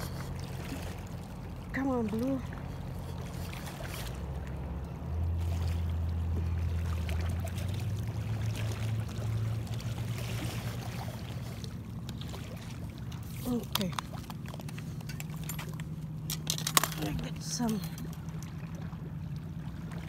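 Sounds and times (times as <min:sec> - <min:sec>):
low steady rumble: 0:00.0 - 0:20.0
fish splashing at water surface: 0:02.8 - 0:17.1.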